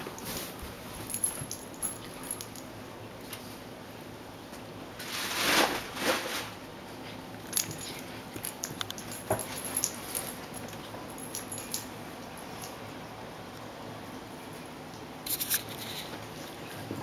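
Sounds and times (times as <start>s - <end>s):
animals scuffling on carpet: 0.2s - 1.6s.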